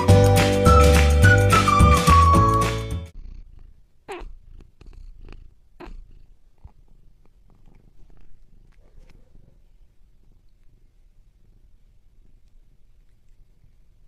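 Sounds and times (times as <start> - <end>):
cat purring: 3.1 - 14.0.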